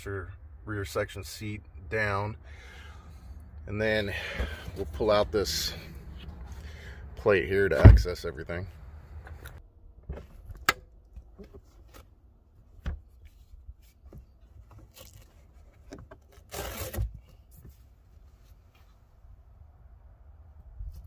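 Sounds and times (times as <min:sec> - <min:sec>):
thump: 0:07.8 - 0:08.1.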